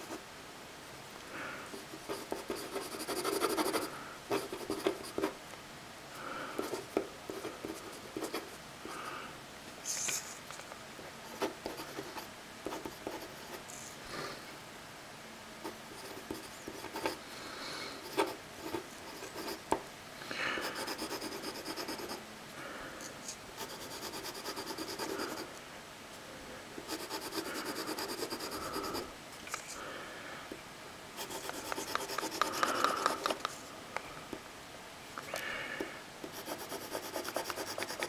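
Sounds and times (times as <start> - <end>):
pen scratching across paper: 2.0 - 5.3, 20.7 - 22.2, 23.6 - 25.5, 26.9 - 29.0, 31.2 - 33.5, 36.3 - 38.0.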